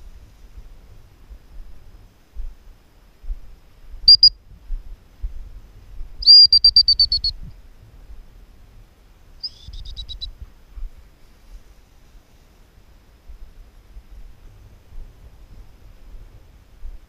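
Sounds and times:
high trilling whistles: 4.1 - 4.3, 6.2 - 7.4, 9.4 - 10.3.

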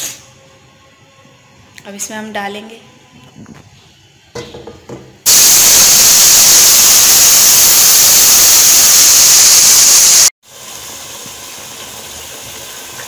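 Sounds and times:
loud sizzle in hot oil: 5.3 - 13.0
quiet steady sizzle: 5.3 - 13.0.

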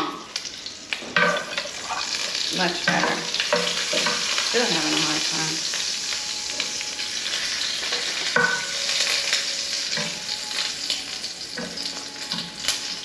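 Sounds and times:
sausage sizzling in frying pan: 0.0 - 13.0.

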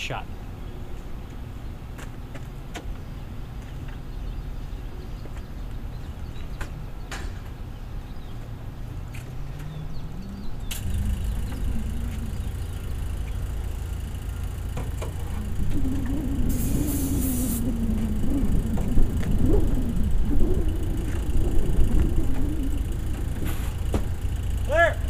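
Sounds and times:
steady low rumble: 9.8 - 25.0
aerosol can hissing: 16.5 - 17.6.

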